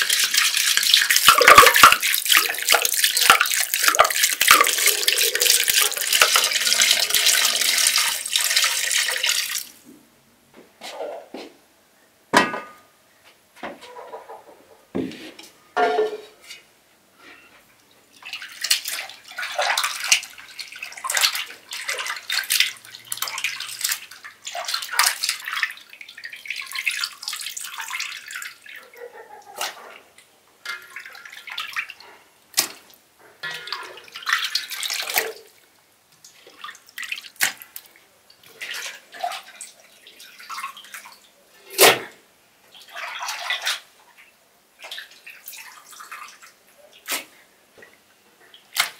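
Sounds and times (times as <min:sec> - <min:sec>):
water dripping: 0:00.0 - 0:09.8, 0:17.8 - 0:29.5, 0:30.2 - 0:41.6, 0:47.8 - 0:48.9
water splashing and sloshing: 0:00.0 - 0:09.8, 0:18.1 - 0:48.9.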